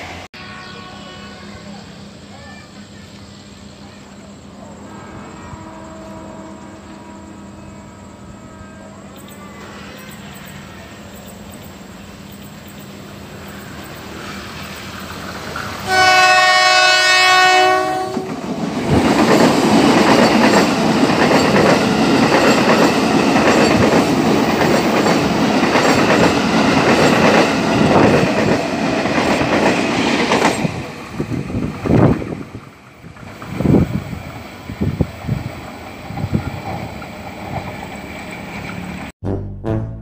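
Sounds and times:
train horn chord: 0.4 - 1.7, 4.8 - 10.1, 15.8 - 18.4
train wheels on rails: 9.2 - 39.1.

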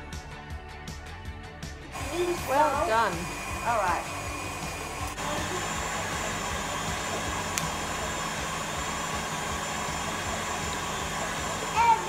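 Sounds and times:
stand mixer whirring: 2.0 - 12.0
mixer speed switch click: 7.5 - 7.8.

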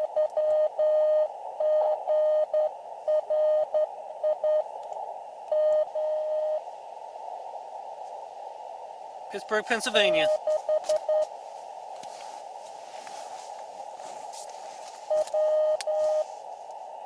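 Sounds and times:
morse code tone: 0.0 - 4.7, 5.5 - 6.6, 10.1 - 11.3, 15.1 - 16.3
radio hiss: 0.0 - 17.0.

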